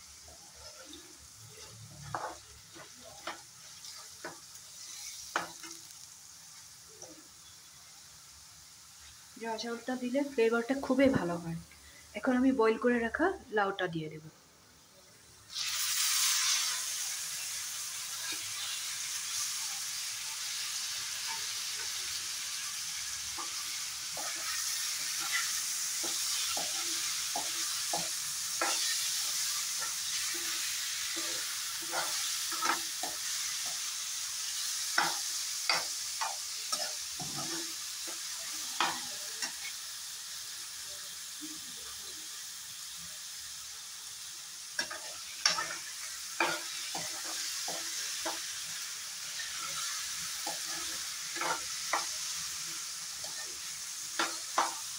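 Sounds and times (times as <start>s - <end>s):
vegetables sizzling in hot oil: 0.0s - 54.9s
spatula scraping a wok: 0.4s - 6.1s, 15.5s - 39.8s, 44.8s - 54.9s.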